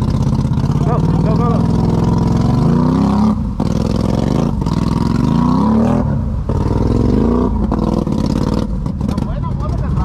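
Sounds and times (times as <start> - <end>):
atv engine revving: 0.0 - 10.0.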